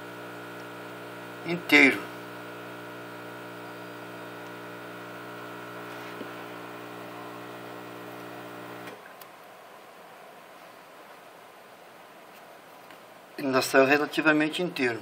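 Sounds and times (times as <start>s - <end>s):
buzzy electrical hum: 0.0s - 9.0s.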